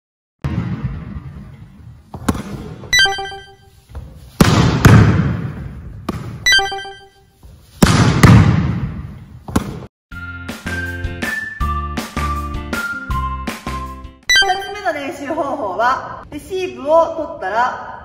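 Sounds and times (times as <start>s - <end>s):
ringing pings: 2.9s - 3.7s, 6.5s - 7.2s, 14.3s - 14.9s
volleyball smacks: 4.4s - 6.4s, 7.8s - 9.9s.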